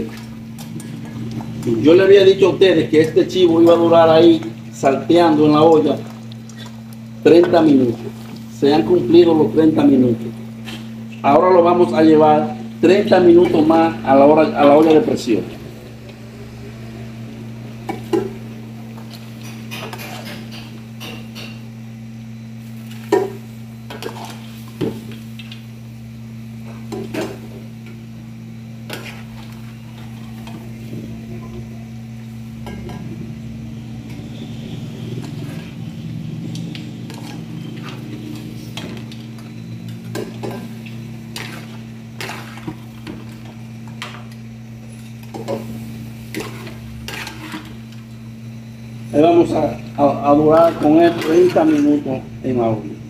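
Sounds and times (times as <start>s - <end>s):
steady low hum: 0.0s - 53.0s
metal ladle scraping a pot: 37.1s - 39.2s, 46.3s - 47.8s.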